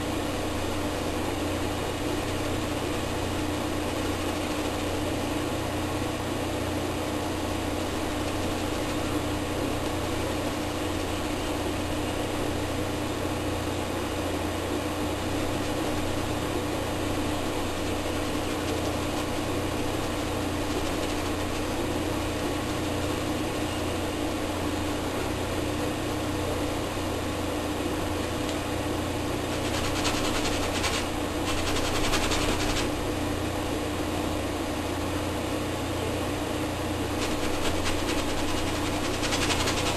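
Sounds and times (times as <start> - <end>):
machine hum: 0.0 - 39.9
hiss: 37.2 - 39.9.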